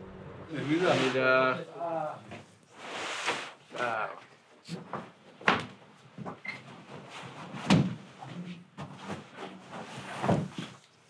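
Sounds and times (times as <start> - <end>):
carpet rustling and dragging: 0.5 - 1.6, 2.3 - 3.7, 6.7 - 10.8.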